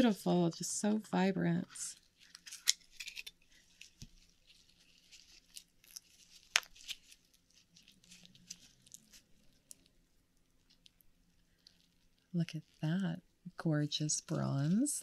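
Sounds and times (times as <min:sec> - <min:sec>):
small clicks and scratching: 0:02.0 - 0:09.9.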